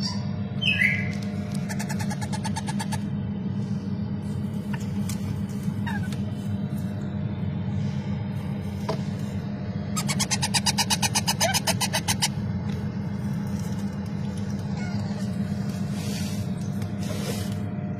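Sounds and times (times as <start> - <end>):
parrot chicks chattering: 0.0 - 3.1, 5.8 - 6.2, 9.9 - 12.4, 14.5 - 15.4
low hum: 0.0 - 17.9.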